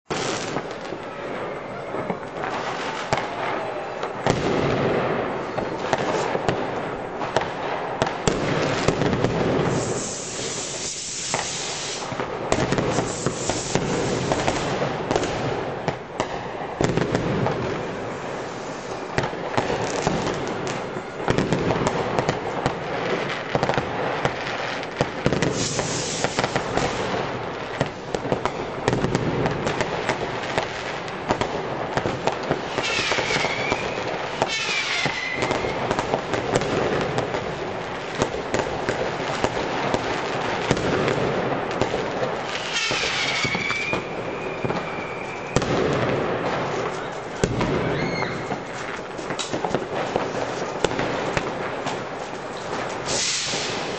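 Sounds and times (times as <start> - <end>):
fireworks bangs and crackles: 0.1 - 53.9
firework whistles: 8.8 - 15.4, 25.2 - 27.1, 32.5 - 36.2, 42.4 - 49.5, 52.9 - 53.9.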